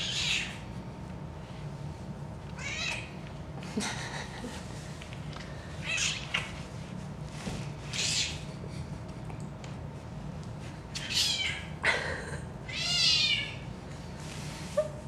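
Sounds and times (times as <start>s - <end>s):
cat meowing: 2.6s - 3.1s, 12.7s - 13.6s.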